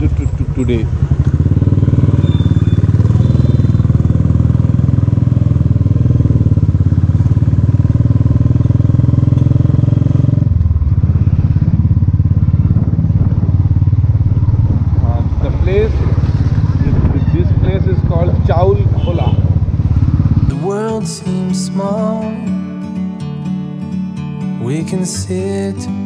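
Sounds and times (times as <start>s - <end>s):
motorcycle engine thumping: 0.0s - 20.5s.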